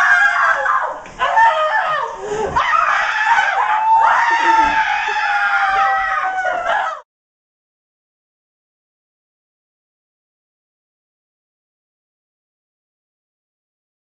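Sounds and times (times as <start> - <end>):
young women screaming: 0.0 - 7.0.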